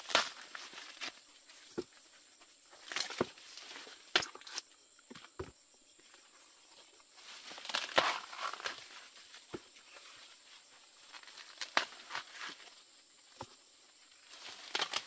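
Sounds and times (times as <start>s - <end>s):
corn ears snapping off stalks: 0.0s - 1.8s, 2.8s - 4.6s, 7.4s - 9.6s, 11.1s - 12.7s, 14.3s - 15.0s
corn leaves and husks rustling: 0.0s - 4.7s, 6.0s - 15.0s.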